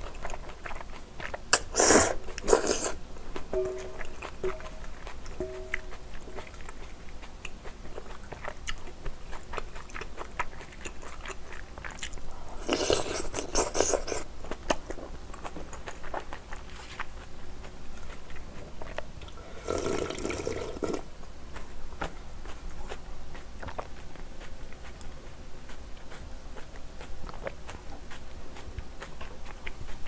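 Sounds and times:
chewing with mouth clicks: 0:00.0 - 0:30.0
loud slurps of broth: 0:01.6 - 0:03.0, 0:19.4 - 0:21.0.

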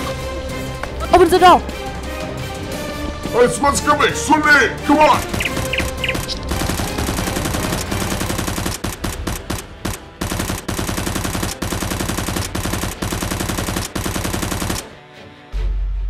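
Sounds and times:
machine-gun fire: 0:05.2 - 0:14.9.

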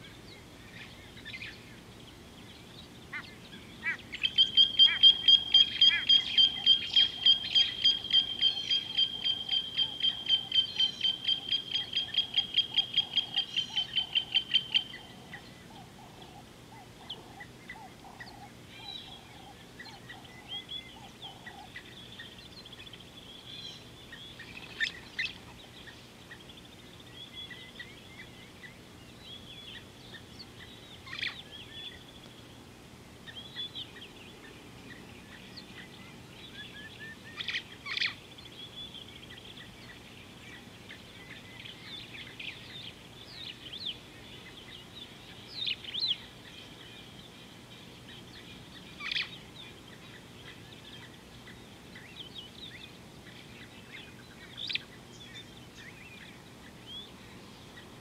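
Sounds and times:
soft bird chirps: 0:00.0 - 0:32.6, 0:33.2 - 0:58.0
bird lower chattering call: 0:03.1 - 0:21.9
bird rapid high piping notes: 0:04.2 - 0:15.1.

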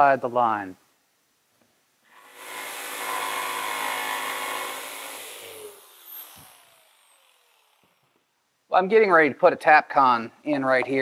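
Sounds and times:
jigsaw cutting plywood: 0:02.2 - 0:08.0.

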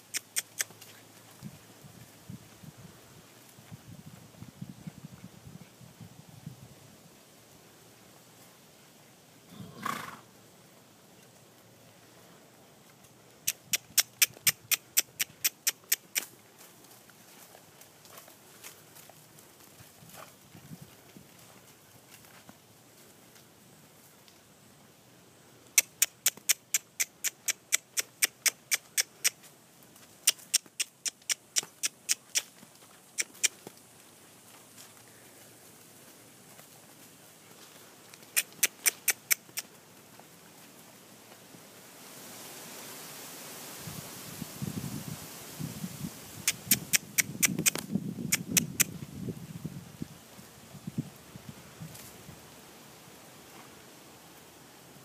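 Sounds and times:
person clucking tongue: 0:00.1 - 0:00.7, 0:13.5 - 0:16.3, 0:25.8 - 0:29.4, 0:38.3 - 0:39.6, 0:46.4 - 0:48.9
horse snorting: 0:09.5 - 0:10.3
run of sharp clicks: 0:25.8 - 0:29.4, 0:46.4 - 0:48.9.

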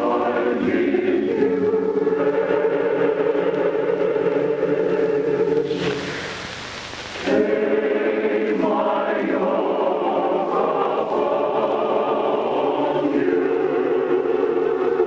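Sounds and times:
choir singing held chords: 0:00.0 - 0:06.5, 0:07.2 - 0:15.0
hiss: 0:03.5 - 0:08.7.

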